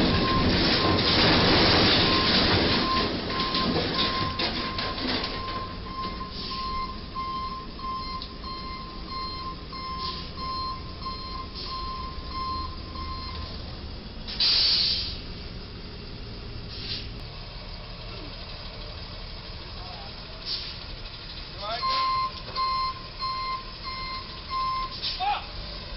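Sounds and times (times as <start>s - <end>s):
truck body knocking and crunching: 0.0s - 9.6s
loud hiss: 14.3s - 15.2s.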